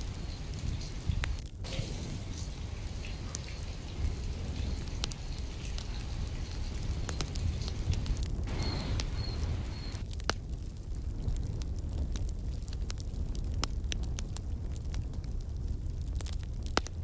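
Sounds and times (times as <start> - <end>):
rain hissing: 0.0 - 10.1
sharp rain drop ticks: 0.0 - 17.0.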